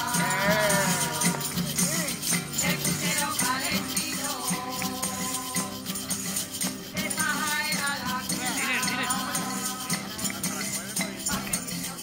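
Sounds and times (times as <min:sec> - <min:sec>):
guitar: 0:00.0 - 0:12.0
people singing: 0:00.0 - 0:12.0
shaken hand percussion: 0:00.0 - 0:12.0
tambourine: 0:00.0 - 0:12.0.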